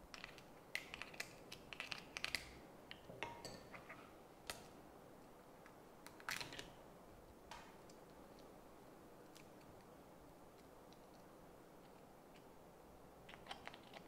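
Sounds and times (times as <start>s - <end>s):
crab shells cracking: 0.1s - 3.0s, 13.3s - 14.0s.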